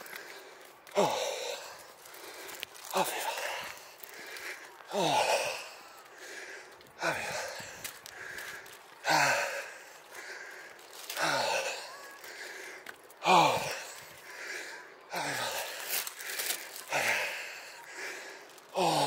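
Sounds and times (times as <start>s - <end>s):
person breathing heavily: 0.0s - 19.0s.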